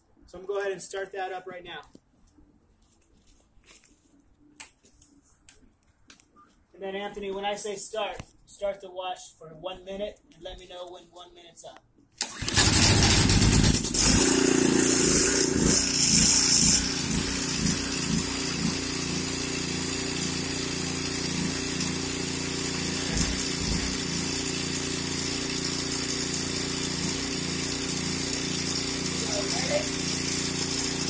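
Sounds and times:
pressure washer engine running: 12.2 - 31.0
pressure washer pull-started: 12.2 - 31.0.

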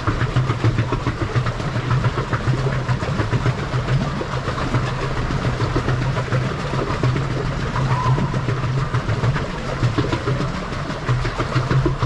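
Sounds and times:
paddle-wheel churning water: 0.0 - 12.0
water splashing: 0.0 - 12.0.

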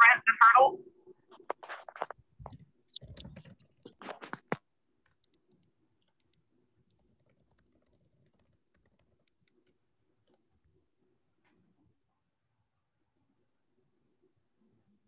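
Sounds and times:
microphone clicks and knocks: 1.3 - 4.6.

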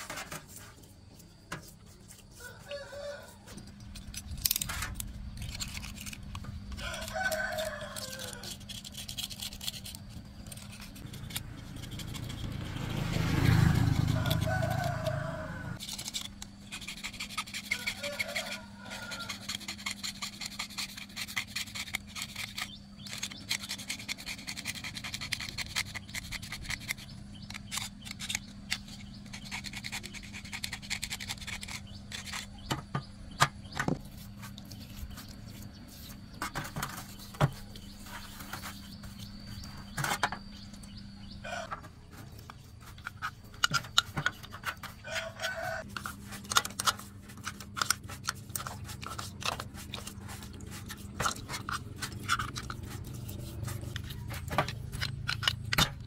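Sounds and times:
metal scraper scraping metal: 1.5 - 56.0
clicks and knocks of handling: 41.6 - 56.0.

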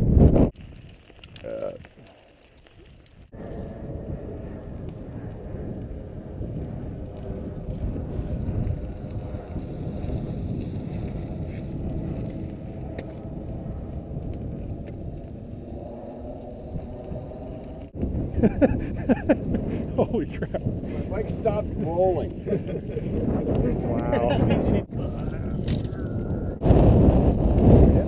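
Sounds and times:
wind on microphone: 0.0 - 28.0
tyres rolling over wet gravel: 5.4 - 22.9.

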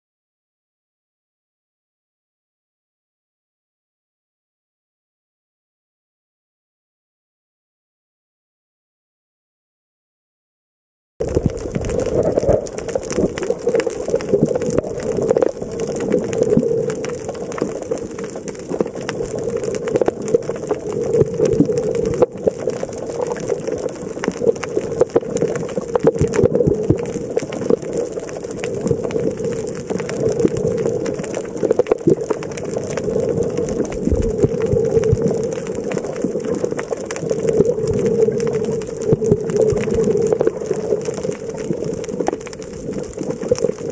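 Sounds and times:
crackle of small clicks: 11.2 - 43.9
muffled underwater water rush: 11.2 - 43.9.

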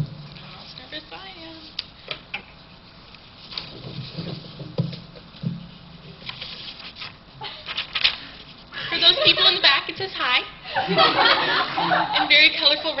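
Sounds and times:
paper rustling: 2.8 - 8.7.

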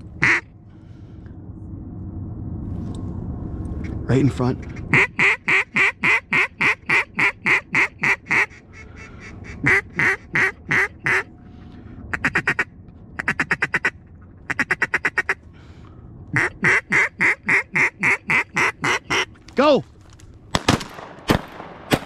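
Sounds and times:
duck call quacks: 0.2 - 0.4, 4.9 - 11.3, 12.1 - 15.4, 16.4 - 19.3.

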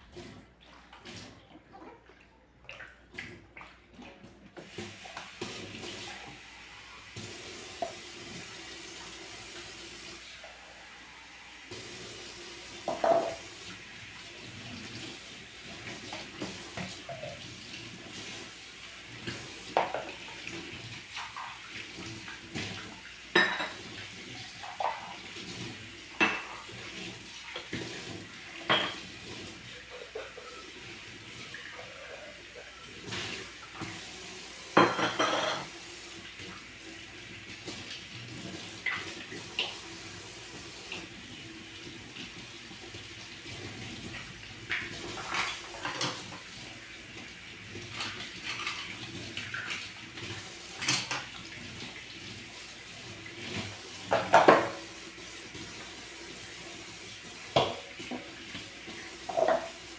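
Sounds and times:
water running into sink: 0.0 - 59.9
dishes clinking together: 12.9 - 13.4, 23.3 - 23.9, 28.7 - 29.0, 34.8 - 35.7, 59.3 - 59.7.

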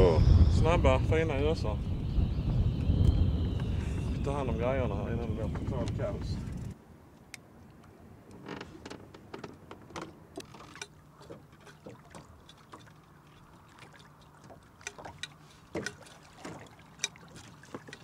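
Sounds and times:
low boat motor hum: 0.0 - 6.8
water slapping against hull: 9.3 - 18.0.

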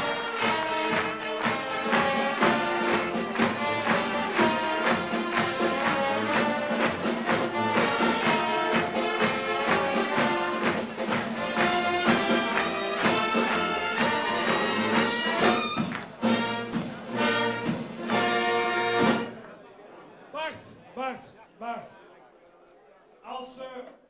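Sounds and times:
brass band playing lively tune: 0.0 - 19.5.

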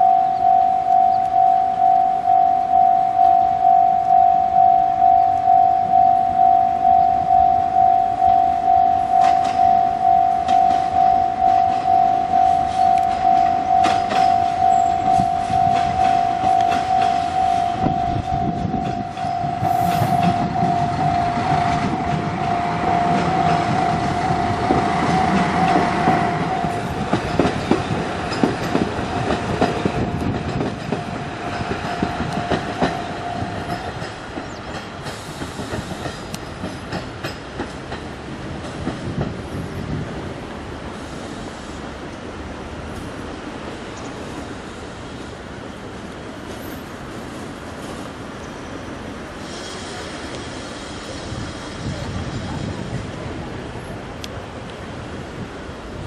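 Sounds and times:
level-crossing alarm bell: 0.0 - 27.8, 29.2 - 34.1
diesel train rumbling past: 0.0 - 56.0
train wheels clicking on rail joints: 5.1 - 56.0.

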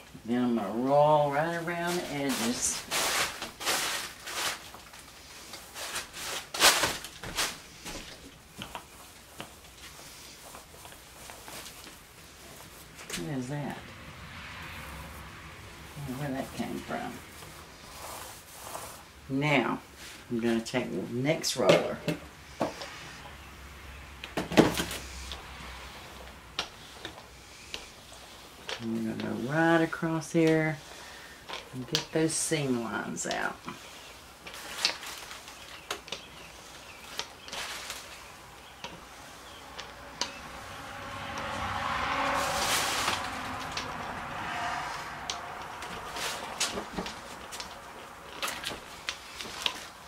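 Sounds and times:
paint roller swishing on tabletop: 1.1 - 13.5, 14.8 - 19.3, 36.5 - 48.0.

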